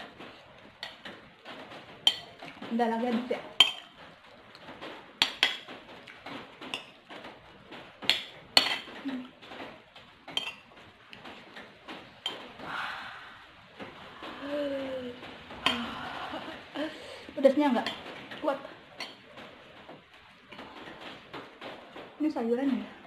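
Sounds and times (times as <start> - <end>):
cutlery clinking on a plate: 2.0 - 2.6, 3.6 - 4.0, 5.2 - 5.7, 8.1 - 9.0, 10.3 - 10.7, 19.0 - 19.2
person humming: 14.2 - 16.6.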